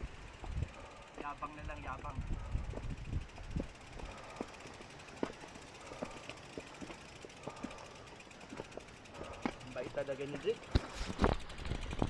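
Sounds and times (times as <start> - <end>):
bicycle freewheel ticking: 0.0 - 12.0
footsteps and stones on dirt: 2.7 - 12.0.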